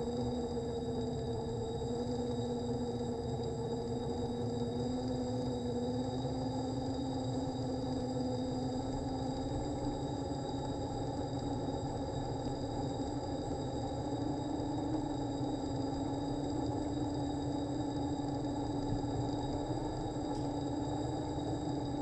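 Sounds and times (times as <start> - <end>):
faint high whine: 0.0 - 22.0.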